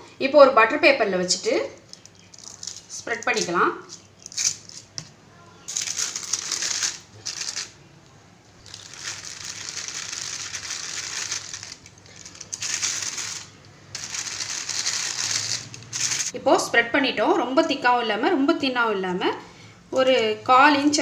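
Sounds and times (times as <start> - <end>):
plastic sheet crinkling: 1.9 - 7.8, 8.6 - 16.4.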